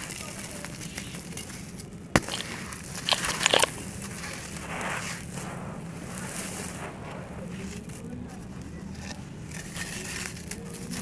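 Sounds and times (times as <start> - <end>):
clay lumps crushed by hand: 0.0 - 5.6
grit pouring down: 2.2 - 8.7.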